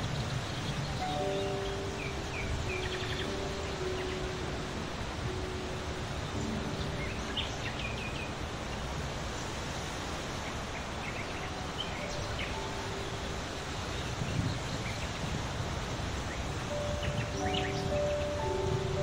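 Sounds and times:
outdoor hiss: 0.0 - 19.0
high bird chirps: 0.6 - 4.4, 16.4 - 19.0.

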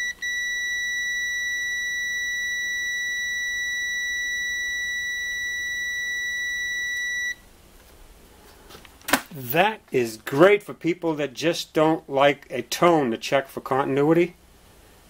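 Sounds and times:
multimeter continuity beep: 0.0 - 7.4.

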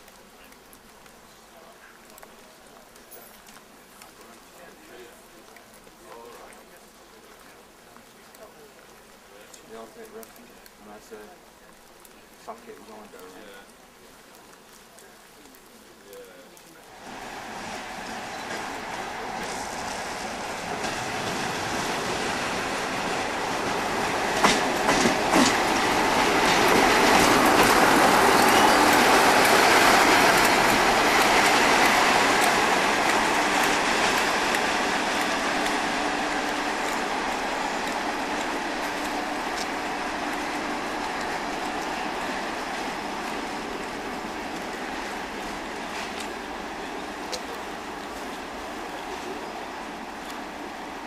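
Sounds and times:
diesel locomotive passing: 16.8 - 51.0.

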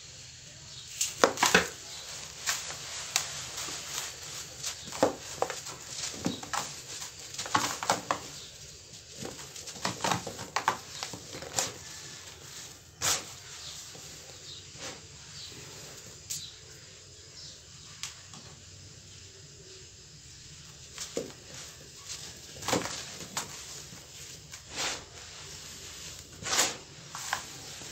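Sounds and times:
powder pouring hiss: 0.0 - 9.1, 10.5 - 27.9
sand-cement block crumbling: 21.0 - 27.9.

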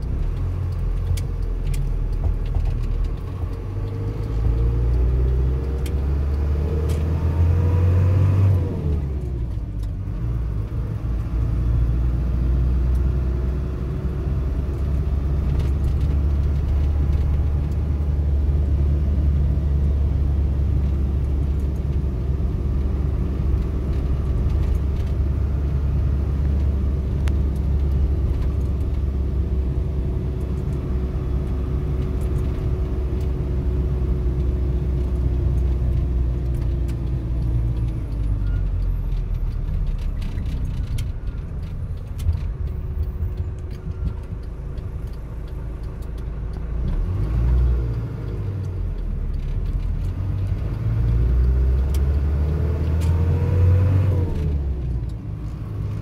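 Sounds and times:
car engine: 0.0 - 56.0
road rumble: 0.0 - 56.0.

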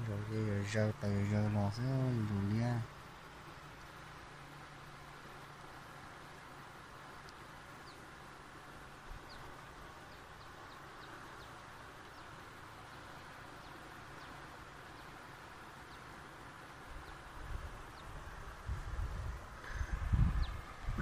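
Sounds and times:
steady outdoor hiss: 0.0 - 21.0
wind buffeting microphone: 17.0 - 21.0.

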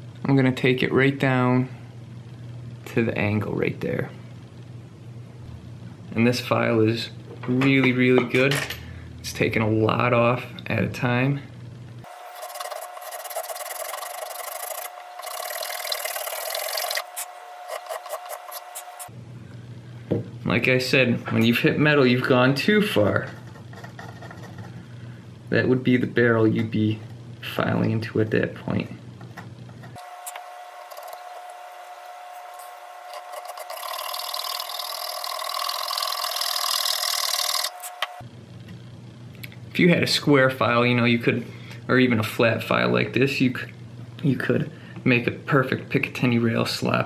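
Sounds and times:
file rasping on metal: 12.2 - 19.1, 32.4 - 37.8.

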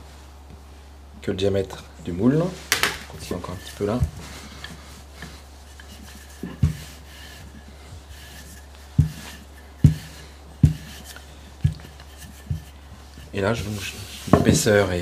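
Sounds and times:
rolling pin rubbing on dough: 2.4 - 15.0
dull knocks of wood on wood: 6.4 - 7.0, 8.9 - 12.7.

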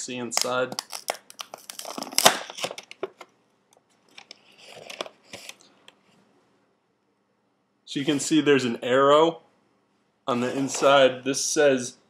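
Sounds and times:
cardboard box tearing open: 1.6 - 2.7.

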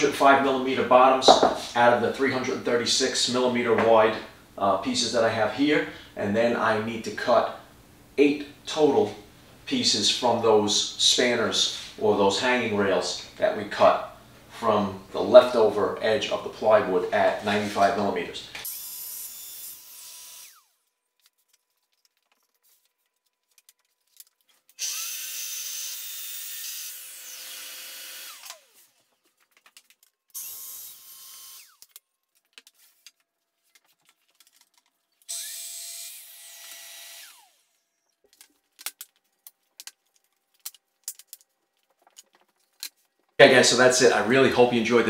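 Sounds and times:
circular saw cutting plywood: 18.6 - 20.7, 24.8 - 29.2, 30.4 - 31.8, 35.3 - 37.8
saw blade spinning down: 24.8 - 29.0, 35.3 - 37.8.

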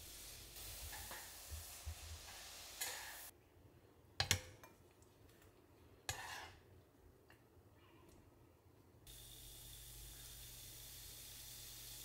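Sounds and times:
vegetables sizzling in a frying pan: 0.0 - 3.3, 9.1 - 12.0.

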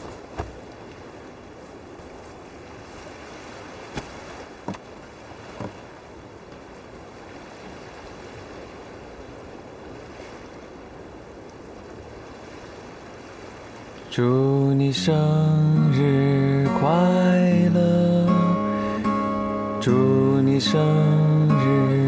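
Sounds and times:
soft knocks: 0.0 - 0.6, 3.9 - 4.9, 5.6 - 5.8
sea surf: 0.0 - 22.0.

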